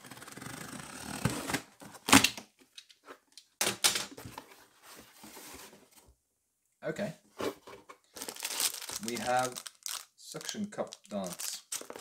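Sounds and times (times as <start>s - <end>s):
cardboard rustling: 4.1s - 6.1s.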